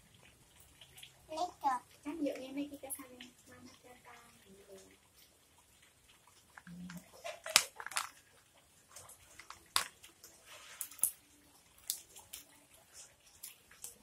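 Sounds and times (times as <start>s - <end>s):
plastic molds clicking and knocking: 6.6s - 8.2s, 9.4s - 10.0s.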